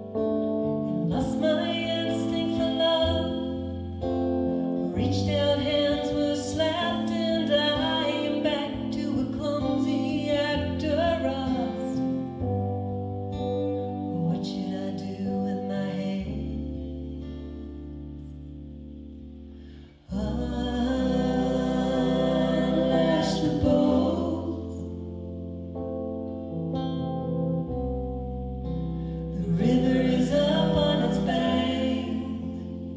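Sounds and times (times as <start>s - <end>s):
acoustic guitar: 0.0s - 32.9s
keyboard: 0.0s - 32.9s
women singing: 0.9s - 3.8s, 4.6s - 12.2s, 14.1s - 16.8s, 20.1s - 25.0s, 29.3s - 32.9s.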